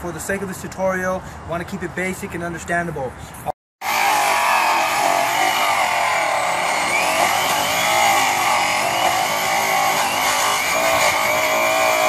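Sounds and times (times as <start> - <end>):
rotary polisher whining: 3.8 - 12.0.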